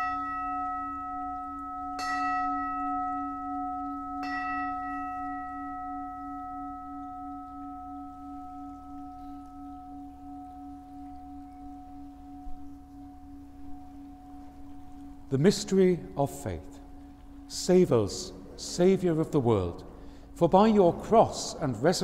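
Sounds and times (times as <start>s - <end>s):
altar bell ringing: 0.0s - 22.0s.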